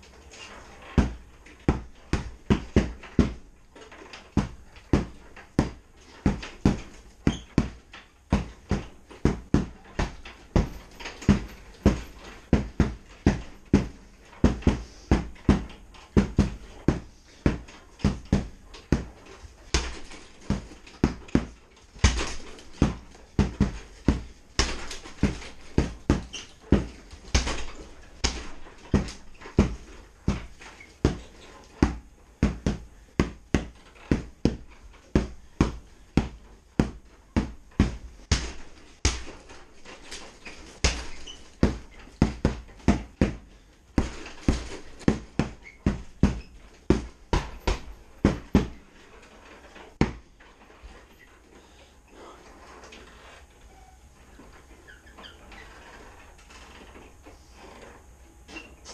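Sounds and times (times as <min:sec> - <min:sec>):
tomahawk thudding into punching bag: 0:04.4 - 0:19.1, 0:19.7 - 0:43.4, 0:44.0 - 0:48.8, 0:50.0 - 0:50.2.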